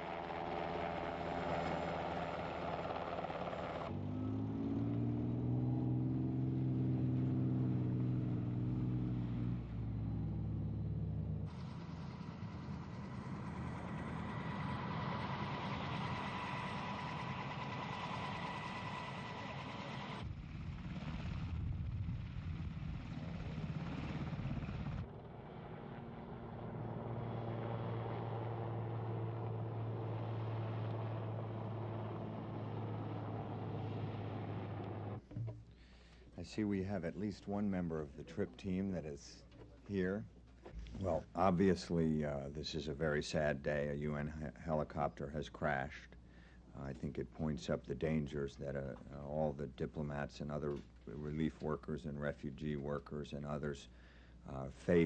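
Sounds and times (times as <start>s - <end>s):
vehicle engines humming: 0.0s - 20.8s, 22.7s - 35.3s.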